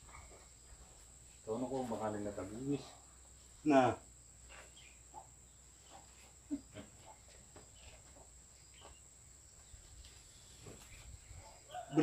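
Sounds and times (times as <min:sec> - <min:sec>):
faint rustles: 0:04.3 - 0:11.8.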